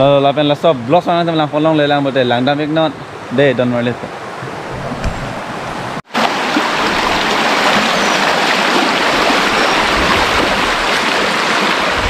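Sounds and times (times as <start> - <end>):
stream rushing over rocks: 4.2 - 12.0.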